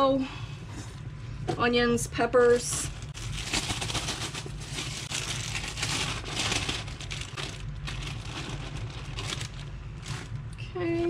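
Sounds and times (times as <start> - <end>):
low hum: 0.0 - 11.0
plastic bag crinkling: 2.5 - 10.6.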